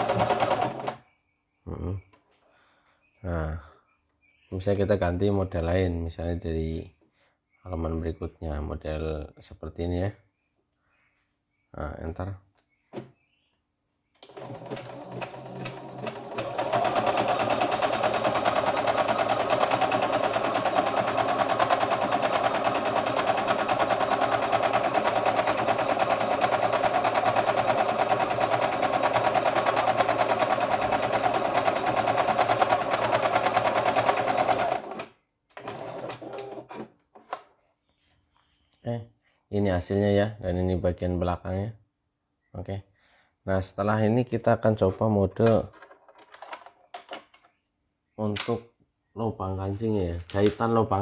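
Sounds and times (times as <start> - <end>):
sewing machine stitching: 0.0 - 1.0, 14.2 - 36.9.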